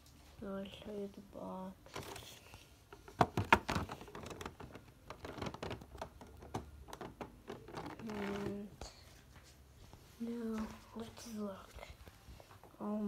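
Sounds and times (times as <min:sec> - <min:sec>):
plastic packaging crinkling: 0:03.0 - 0:08.7.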